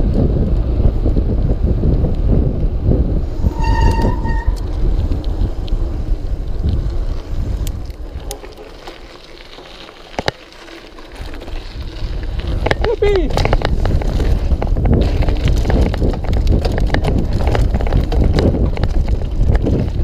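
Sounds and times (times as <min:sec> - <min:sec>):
bike tyres rumbling over track: 0:00.0 - 0:20.0
wind buffeting microphone: 0:00.0 - 0:20.0
short squeal: 0:03.4 - 0:04.7
sharp clicks and rattles: 0:03.8 - 0:20.0.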